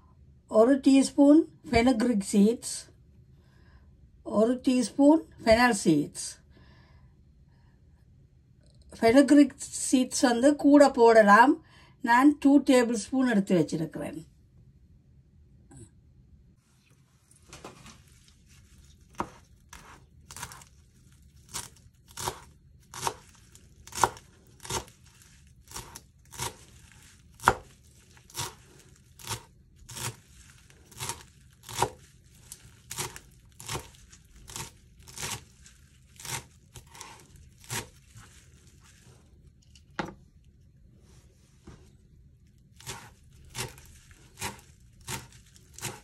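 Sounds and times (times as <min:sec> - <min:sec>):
knife chopping on cutting board: 0:19.1 - 0:20.6, 0:21.5 - 0:25.0, 0:25.7 - 0:26.7, 0:27.4 - 0:27.7, 0:28.3 - 0:30.2, 0:30.9 - 0:32.0, 0:32.9 - 0:35.4, 0:36.2 - 0:38.3, 0:42.8 - 0:46.0.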